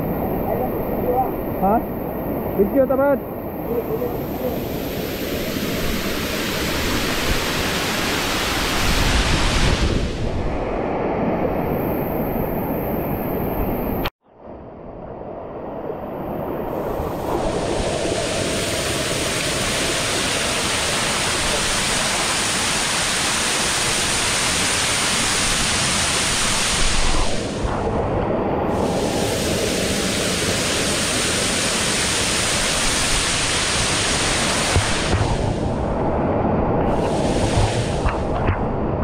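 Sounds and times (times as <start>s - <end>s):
waterfall roaring over rock: 17.5s - 27.5s, 28.8s - 35.5s.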